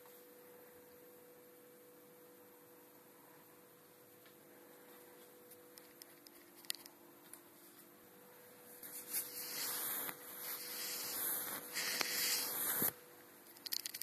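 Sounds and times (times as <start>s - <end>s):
faint steady hum: 0.0s - 14.0s
rough rubbing scraping noise: 9.0s - 12.9s.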